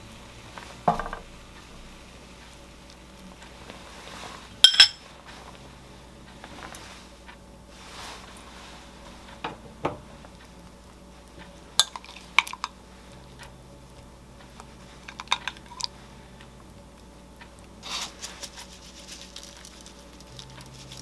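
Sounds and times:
kitchen utensils clicking and clinking: 0:04.6 - 0:05.0, 0:11.8 - 0:12.7, 0:15.0 - 0:15.9.

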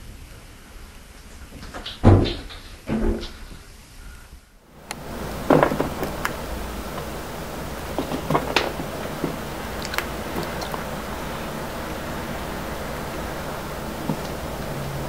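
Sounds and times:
steady hiss: 0:00.0 - 0:15.0
knocks and taps on tile floor: 0:05.4 - 0:06.4.

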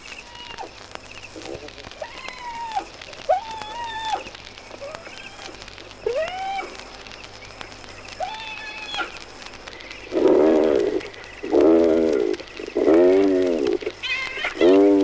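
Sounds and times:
animal crying with rising pitch: 0:00.2 - 0:00.7, 0:02.0 - 0:06.8.

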